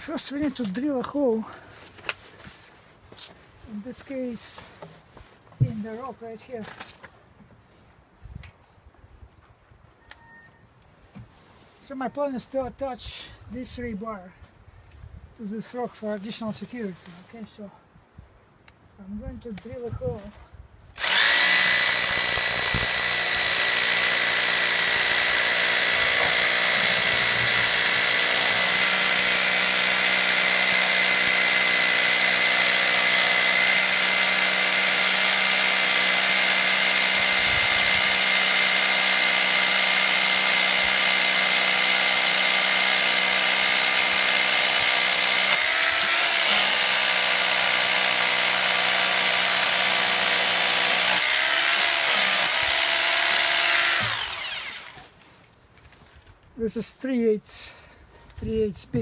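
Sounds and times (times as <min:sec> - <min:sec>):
hammer drill boring into stone: 0:21.0 - 0:55.0.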